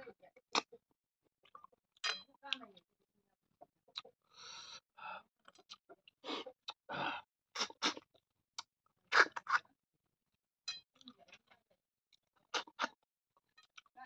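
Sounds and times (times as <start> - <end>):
person sucking and slurping snails: 6.2 - 8.0, 9.1 - 9.6, 12.5 - 12.9.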